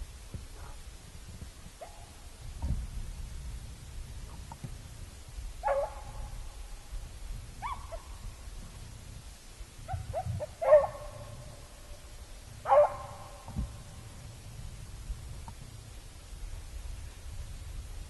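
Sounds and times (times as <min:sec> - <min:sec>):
dog yipping: 0:09.9 - 0:11.0, 0:12.7 - 0:13.0.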